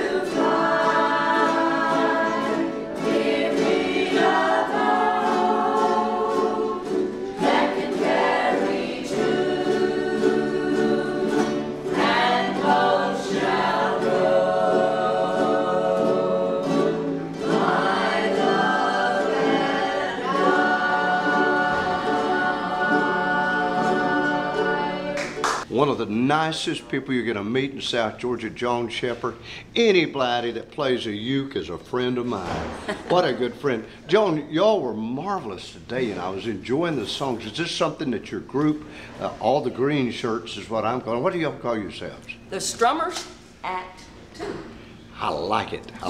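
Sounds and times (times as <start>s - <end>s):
group singing in unison: 0.0s - 25.6s
ukuleles strumming: 0.0s - 29.3s.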